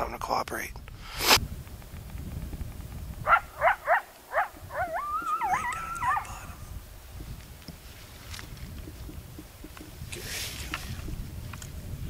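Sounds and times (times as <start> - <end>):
coyote yips: 3.2 - 6.6
coyote howl: 3.3 - 6.6.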